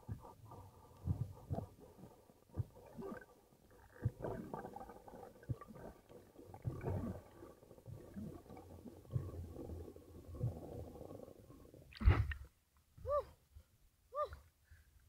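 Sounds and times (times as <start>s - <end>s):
swimming thumps and swishes: 0.0s - 11.0s, 11.8s - 12.5s
underwater rumble of moving water: 0.0s - 12.5s.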